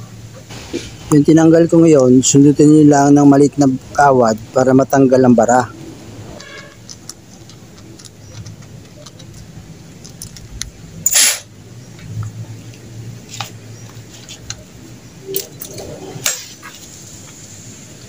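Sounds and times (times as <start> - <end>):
metal parts and tools clinking: 6.3 - 11.5, 15.2 - 16.6.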